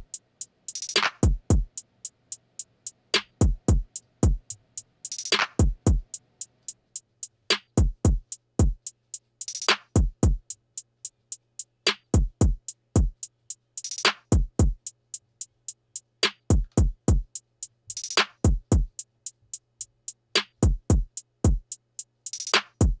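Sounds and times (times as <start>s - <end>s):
hi-hat ticks: 0.0s - 23.0s
deep kick drums: 1.2s - 1.7s, 3.4s - 4.4s, 5.6s - 6.0s, 7.8s - 8.8s, 10.0s - 10.4s, 12.2s - 13.2s, 14.3s - 14.8s, 16.5s - 17.3s, 20.6s - 21.6s.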